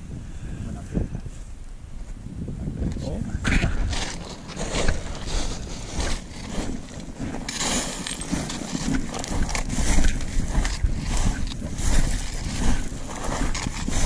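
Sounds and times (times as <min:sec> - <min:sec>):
wind buffeting microphone: 0:00.0 - 0:14.0
rustling and knocking from movement: 0:03.6 - 0:14.0.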